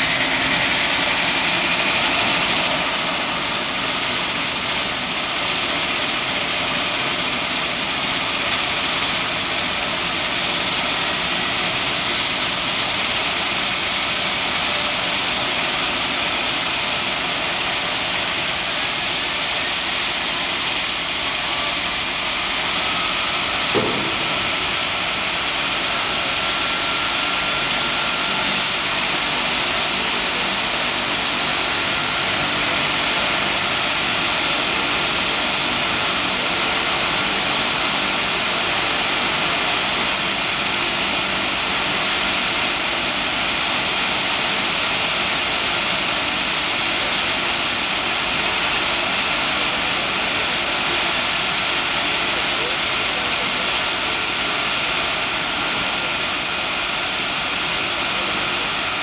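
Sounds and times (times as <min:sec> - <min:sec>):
turboprop engine whine: 0:00.0 - 0:59.0
short low knock: 0:23.8 - 0:24.9.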